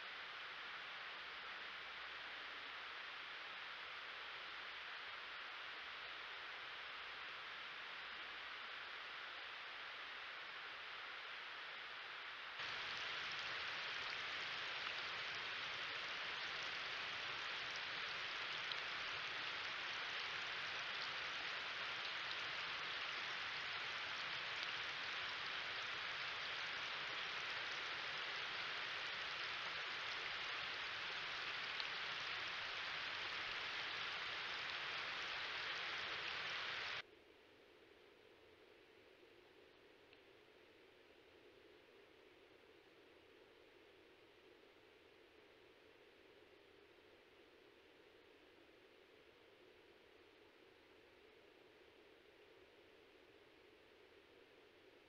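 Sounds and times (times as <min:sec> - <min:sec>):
steady hiss: 0:00.0 - 0:55.0
faint ticks: 0:12.5 - 0:37.0, 0:40.0 - 0:40.4.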